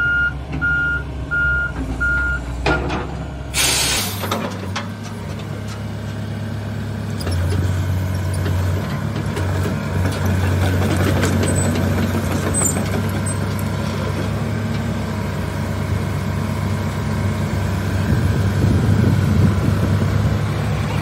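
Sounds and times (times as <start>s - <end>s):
diesel engine idling: 11.9s - 21.0s.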